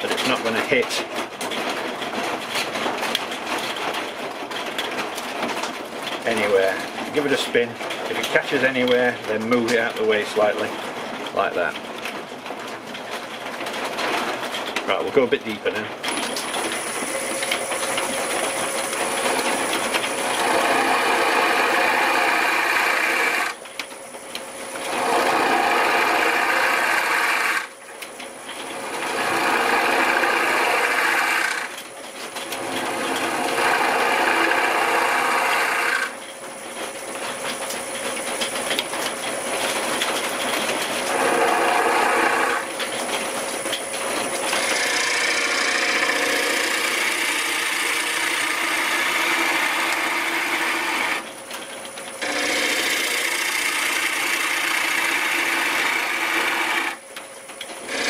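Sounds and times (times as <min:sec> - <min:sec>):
wood lathe tool cutting bowl: 0:16.1 - 0:23.6, 0:24.8 - 0:27.7, 0:28.6 - 0:31.8, 0:32.4 - 0:36.2, 0:41.0 - 0:42.8, 0:44.3 - 0:51.3, 0:52.2 - 0:57.0, 0:57.8 - 0:58.0.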